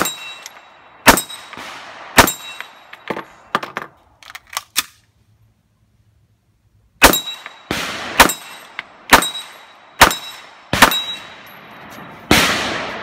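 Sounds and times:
rifle gunshots: 1.0s - 2.6s, 7.0s - 11.4s, 12.2s - 13.0s
high metallic ring: 8.5s - 12.2s.

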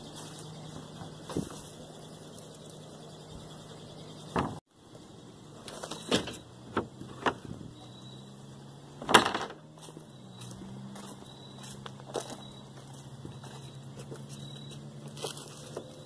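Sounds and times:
trash bags and cardboard rustling: 0.0s - 2.0s, 9.2s - 16.0s
steady low hum: 0.0s - 9.2s.

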